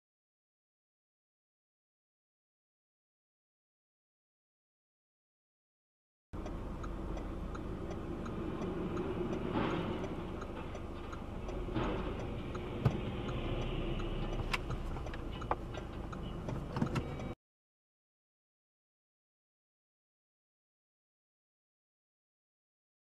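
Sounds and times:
engine and road rumble: 6.4s - 17.4s
faint regular ticking: 6.4s - 17.4s.

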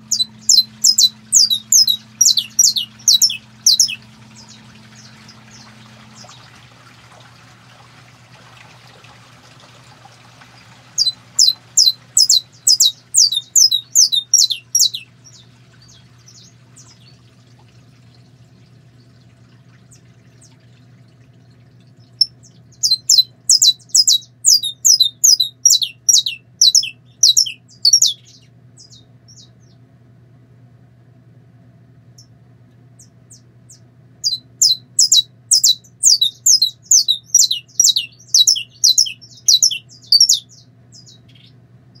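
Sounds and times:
finch singing sharp notes: 0.0s - 6.3s, 11.0s - 17.0s, 22.2s - 29.5s, 34.2s - 42.0s
faint low hum: 0.0s - 42.0s.

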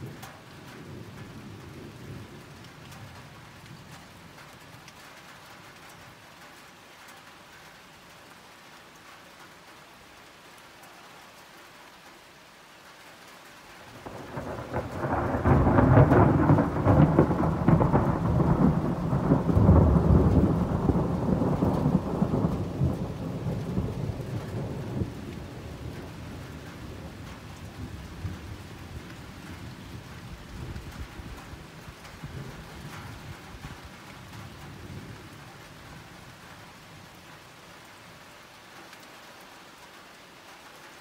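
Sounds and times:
soft steady rain: 0.0s - 41.0s
thunder rolling: 13.9s - 33.7s.

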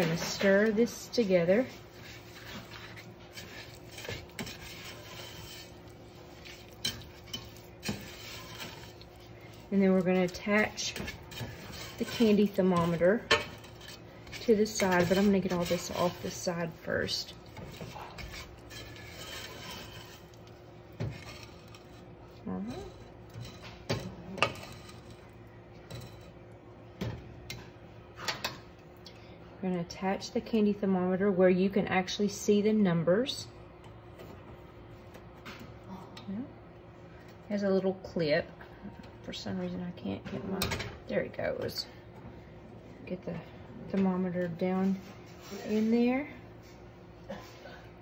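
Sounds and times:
spoon scraping thick mixture: 0.0s - 26.4s.

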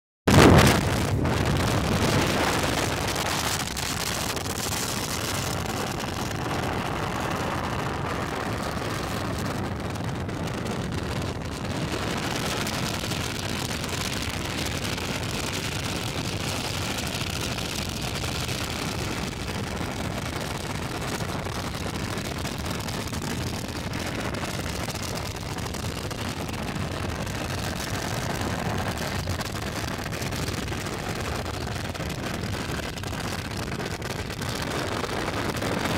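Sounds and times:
wind rushing: 0.3s - 13.8s.

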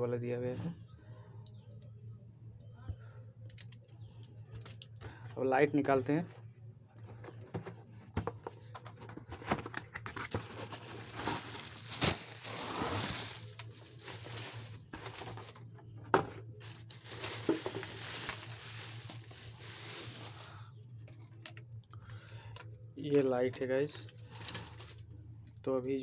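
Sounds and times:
plastic packaging crinkling: 8.6s - 21.6s, 23.8s - 25.1s.

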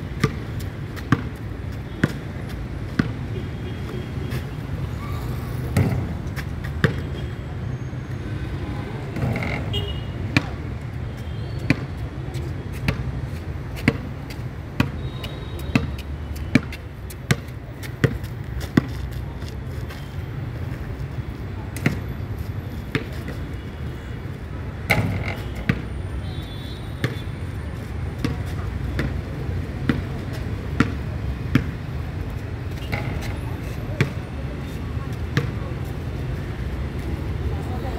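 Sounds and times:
basketball bouncing on hard court: 0.2s - 2.3s, 2.9s - 3.2s, 15.7s - 19.0s, 29.0s - 29.2s, 30.8s - 31.7s.

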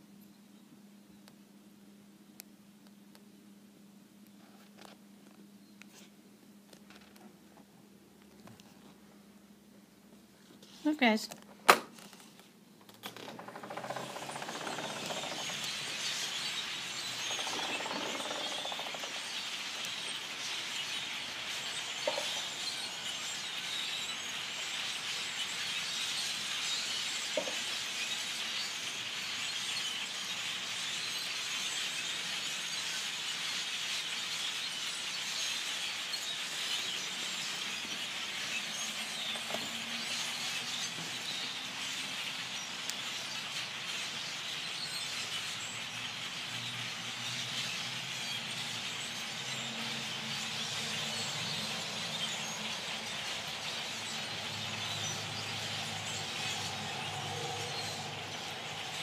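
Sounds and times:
flock of birds calling: 13.2s - 59.0s.

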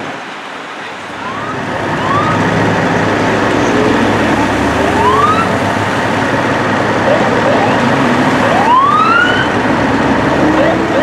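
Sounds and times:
traffic and idling engines: 0.0s - 11.0s
siren whooping: 1.2s - 5.8s, 7.0s - 9.7s.

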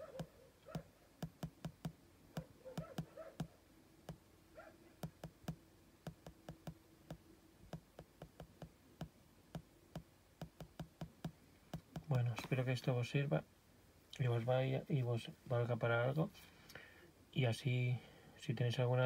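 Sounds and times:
laptop scrolling clicks: 5.0s - 12.1s.

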